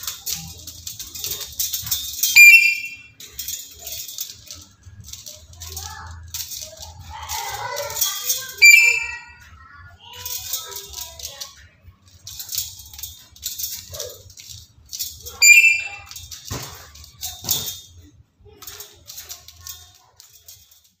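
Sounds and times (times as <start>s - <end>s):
bird whistled squeak: 2.4s - 3.1s, 8.6s - 9.4s, 15.4s - 16.1s.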